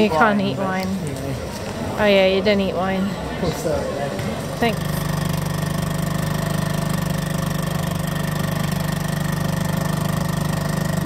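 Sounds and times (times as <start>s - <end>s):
outboard motor running: 4.2s - 11.0s.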